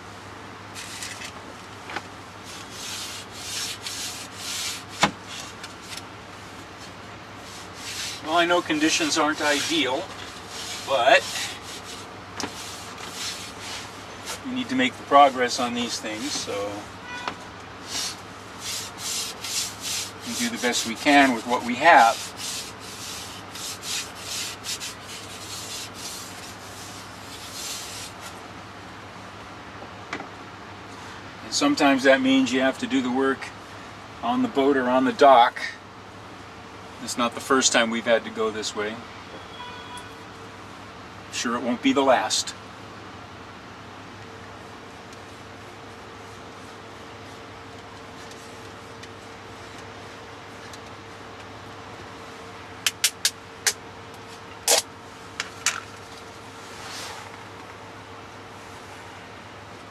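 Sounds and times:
hand rubbing wooden slats: 2.4s - 6.1s, 6.7s - 16.8s, 17.8s - 28.4s, 52.8s - 57.6s.

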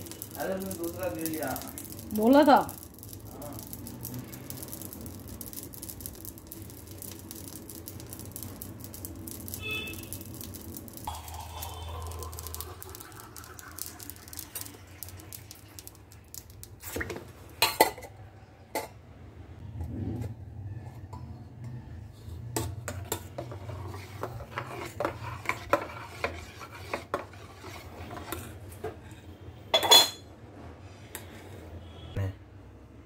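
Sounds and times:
gas burner hissing: 0.0s - 16.8s
seeds crackling: 0.0s - 17.0s
steel dishes clinking: 29.7s - 30.2s.

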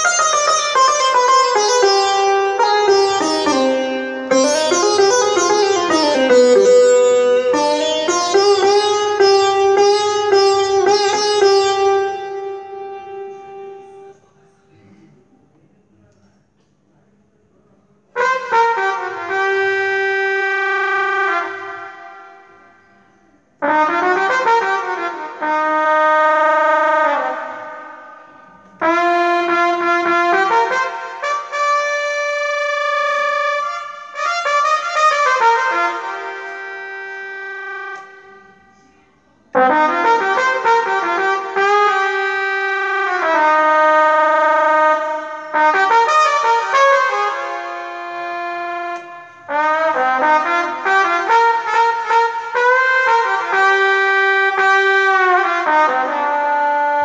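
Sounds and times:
keytar solo melody: 0.0s - 14.1s.

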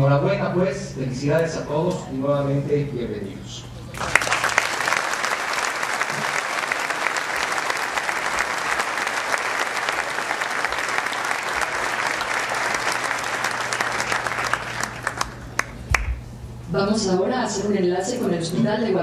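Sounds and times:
audience applauding: 4.0s - 16.2s.

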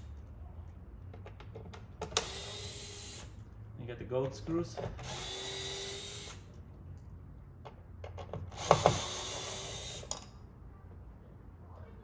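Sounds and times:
electric screwdriver whining: 5.0s - 6.4s, 8.5s - 10.1s.

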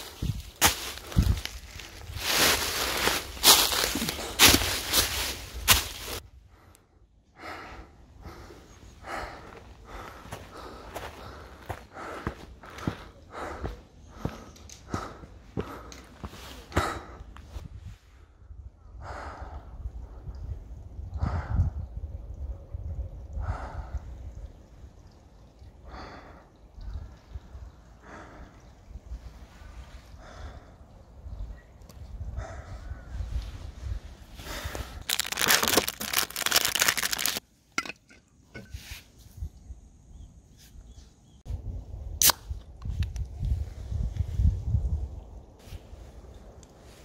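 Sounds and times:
footsteps crunching dry leaves: 0.0s - 6.2s, 34.5s - 37.4s
person breathing: 5.8s - 20.5s, 25.4s - 31.0s, 32.2s - 35.2s.

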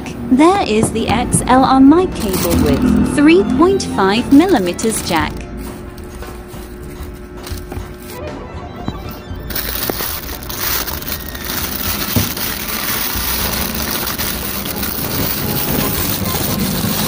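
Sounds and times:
background music: 0.2s - 17.0s
plastic packaging crinkling: 9.5s - 17.0s.

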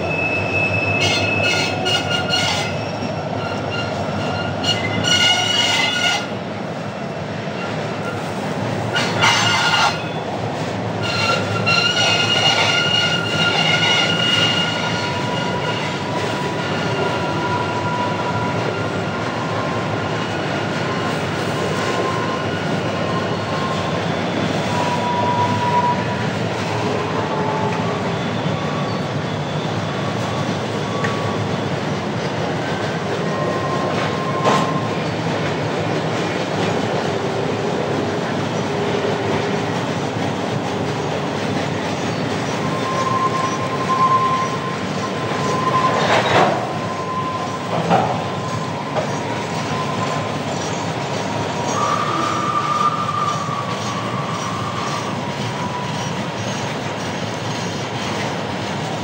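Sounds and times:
train wheels rumbling and rattling: 0.0s - 59.0s
wheel squeals: 11.0s - 19.8s, 42.0s - 58.4s.

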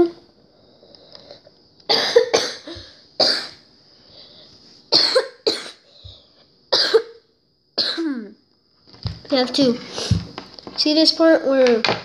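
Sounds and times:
person coughing: 1.9s - 3.6s, 4.9s - 5.8s, 6.7s - 7.2s, 7.8s - 8.2s.

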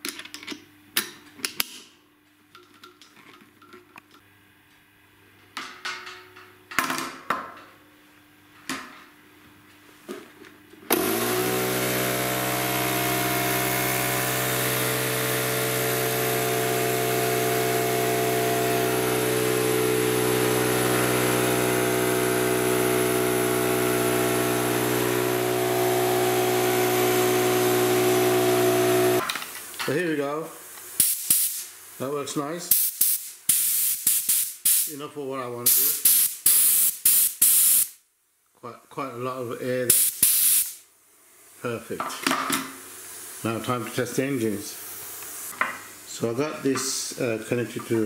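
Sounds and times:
air compressor running: 10.9s - 29.3s, 31.0s - 31.6s, 32.7s - 34.9s, 35.6s - 38.0s, 39.9s - 40.8s, 42.9s - 45.8s.

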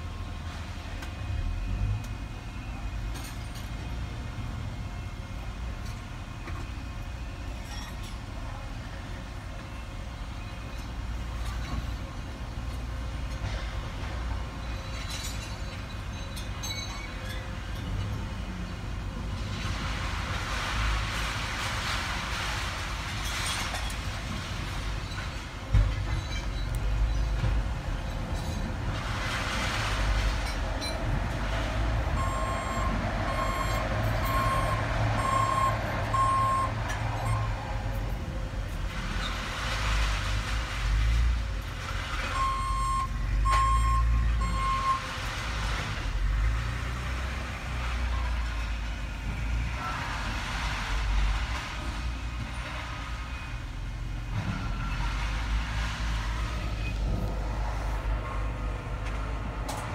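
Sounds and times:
heavy engine rumbling: 0.0s - 59.9s
vehicle backup alarm beeping: 32.1s - 37.6s, 42.3s - 45.1s.

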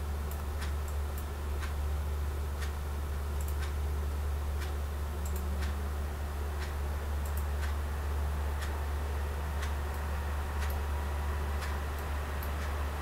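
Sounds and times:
steady low hum: 0.0s - 13.0s
regular sharp ticking: 0.3s - 1.9s, 3.4s - 3.9s, 4.5s - 8.9s.

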